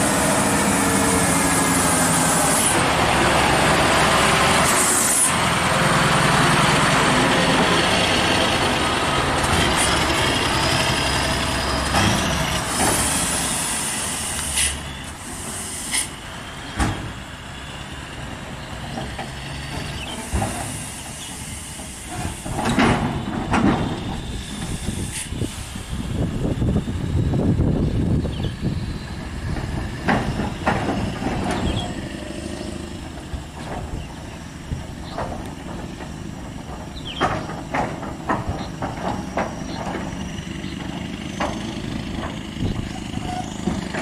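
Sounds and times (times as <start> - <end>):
truck engine running hard: 0.0 - 44.0
air brake hisses: 12.6 - 16.2, 20.1 - 22.5, 24.3 - 26.1.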